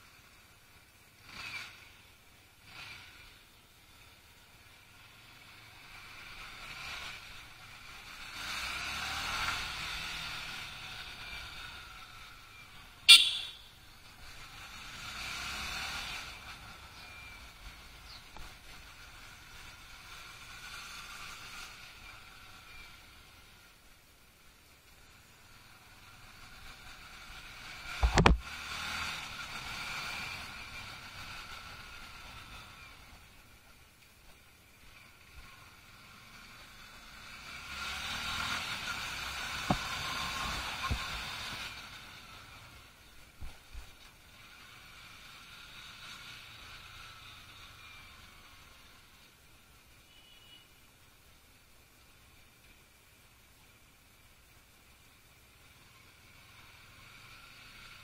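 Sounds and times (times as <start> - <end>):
motorcycle engine riding: 0.0 - 49.9
motorcycle engine running: 0.8 - 23.4
thumps on microphone: 28.0 - 28.4.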